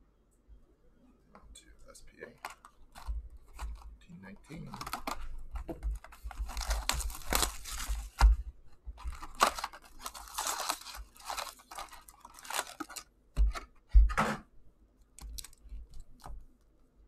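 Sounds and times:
foil packs crinkling: 2.4s - 3.9s, 4.5s - 8.4s, 9.0s - 13.6s
cardboard box tearing open: 6.2s - 8.2s, 9.0s - 13.0s.

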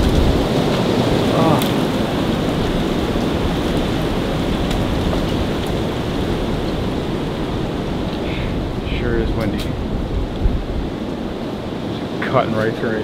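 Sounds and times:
twigs snapping: 0.0s - 2.1s.

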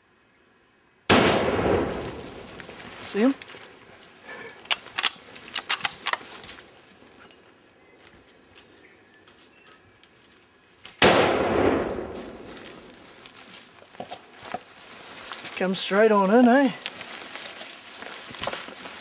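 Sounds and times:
rifle shot echoing: 1.1s - 2.5s, 11.0s - 12.8s.

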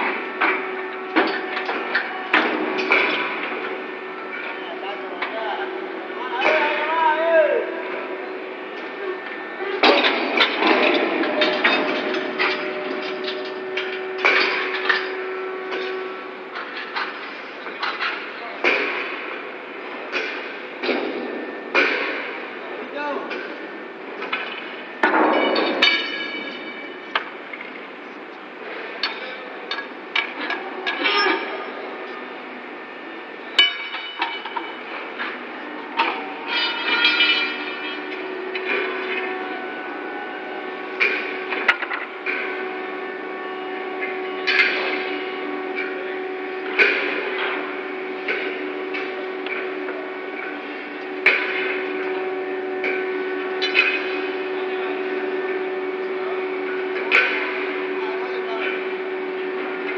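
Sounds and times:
machinery hum: 0.0s - 59.9s
steel rail clanking: 8.8s - 22.6s, 23.3s - 27.9s, 32.8s - 54.8s
steel clanks and knocks: 9.8s - 19.2s, 33.5s - 39.4s, 53.6s - 54.3s.

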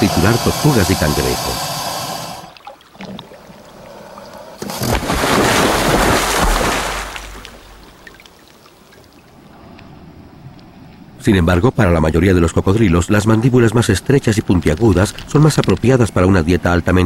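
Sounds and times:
water splashing: 0.0s - 11.0s.

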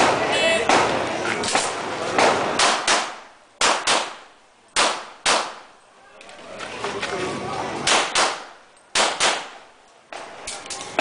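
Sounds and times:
pistol shots echoing: 0.0s - 5.7s, 7.8s - 9.6s.

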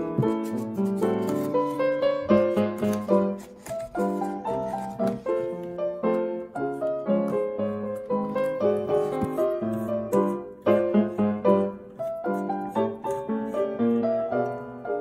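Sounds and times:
ragtime piano music: 0.0s - 15.0s.

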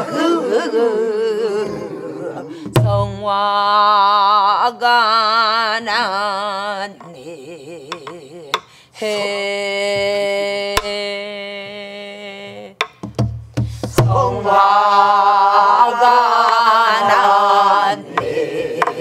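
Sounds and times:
woman singing folk song: 2.6s - 12.8s.

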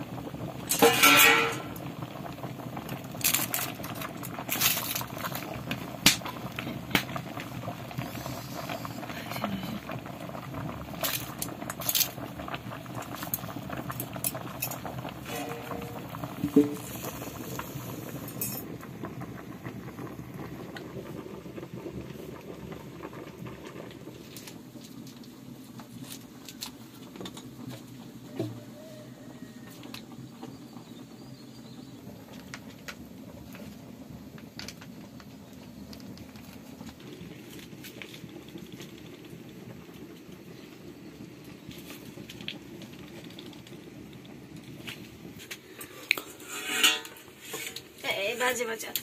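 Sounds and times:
pot boiling over fire: 0.0s - 49.0s
utensil clinking against pot: 0.7s - 1.8s, 46.1s - 47.8s.

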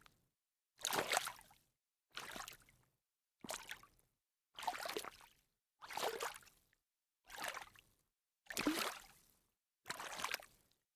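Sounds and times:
footsteps splashing in shallow water: 0.8s - 1.4s, 2.1s - 2.6s, 3.4s - 3.8s, 4.6s - 5.2s, 5.9s - 6.5s, 8.6s - 9.0s, 9.9s - 10.5s.

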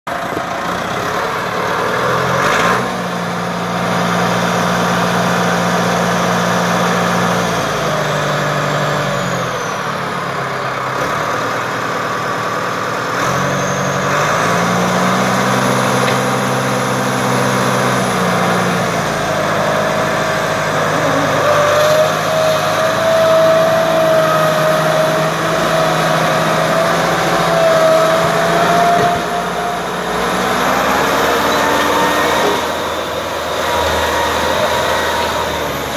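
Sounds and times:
tractor diesel engine: 0.1s - 35.9s
high wavering squeal: 19.8s - 32.8s.

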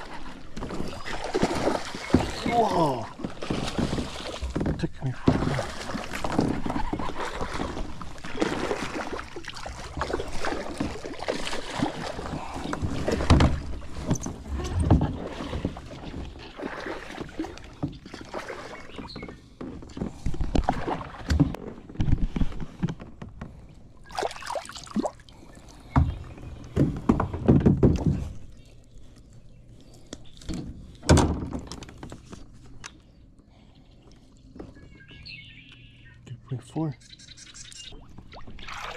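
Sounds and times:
fish splashing in water: 0.0s - 4.6s, 5.2s - 13.8s, 24.0s - 25.8s, 38.0s - 38.9s.

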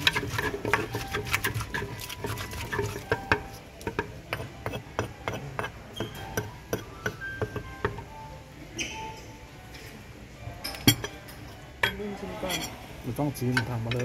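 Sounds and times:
pestle knocking in wooden mortar: 0.0s - 8.1s.

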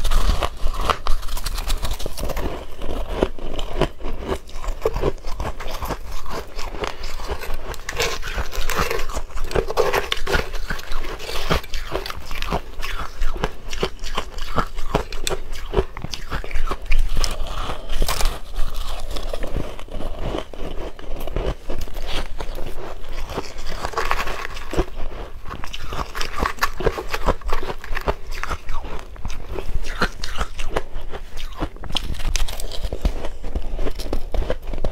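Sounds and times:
chewing crunchy shaved ice: 0.0s - 34.9s
metal spoon scooping ice in bowl: 7.1s - 12.7s.

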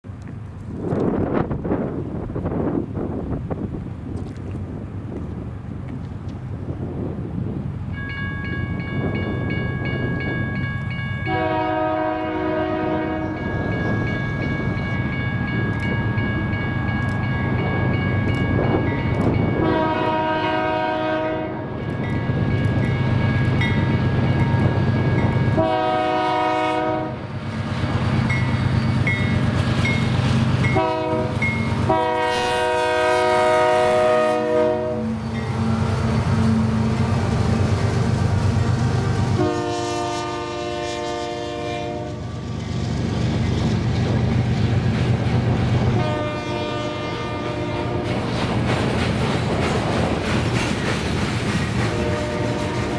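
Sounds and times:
train air horn blasts: 11.2s - 13.6s, 19.6s - 21.8s, 25.5s - 27.3s, 30.7s - 37.3s, 39.1s - 42.3s, 46.0s - 48.2s, 51.9s - 52.9s
diesel engines rumbling: 22.2s - 40.8s
freight cars rolling by: 47.6s - 52.9s.

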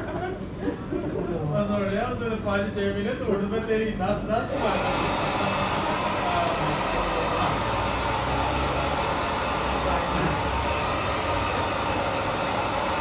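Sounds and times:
hair dryer running: 4.4s - 13.0s.

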